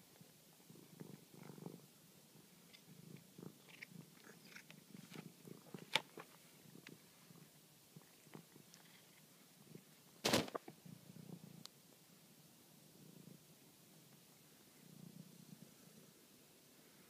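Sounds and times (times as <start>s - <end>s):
cat purring: 0.0s - 17.0s
cat chewing with wet clicks: 2.7s - 5.9s.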